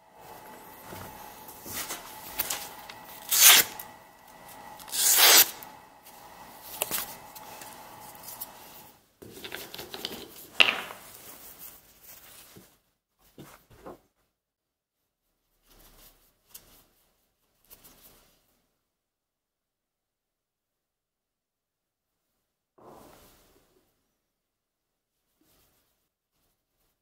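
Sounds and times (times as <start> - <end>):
paper rustling: 0.2 - 14.1
knife slicing through paper: 1.2 - 5.8.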